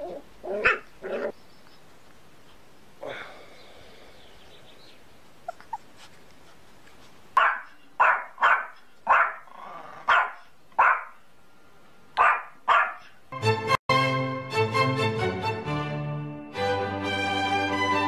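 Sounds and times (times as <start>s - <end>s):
small dog barking: 0.1s - 1.3s, 7.4s - 11.2s, 12.2s - 13.2s
music: 13.4s - 18.0s.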